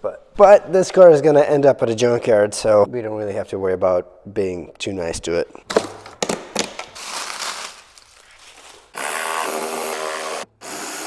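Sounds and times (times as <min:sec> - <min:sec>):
cordless power tool cutting: 0:09.0 - 0:11.0.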